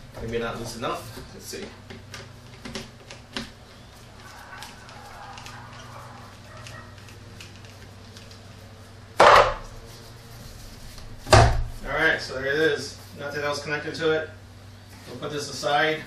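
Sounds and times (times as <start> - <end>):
rubber duct rubbing and clicking: 0.2 - 8.9.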